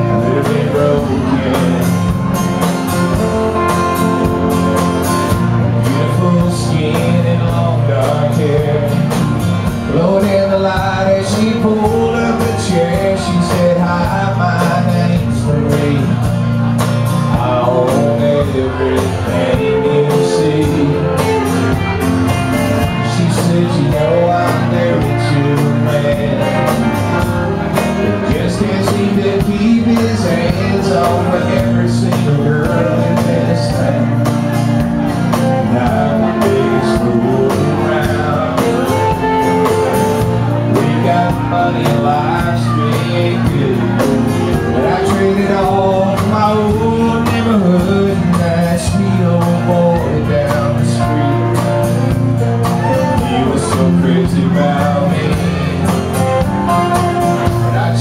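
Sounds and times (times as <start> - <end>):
live country band playing: 0.0 - 58.0
man singing lead vocal: 0.0 - 58.0.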